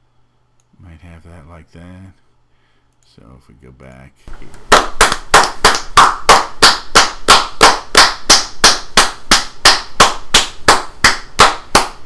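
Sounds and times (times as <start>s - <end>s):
rhythmic hand clapping: 4.6s - 12.0s.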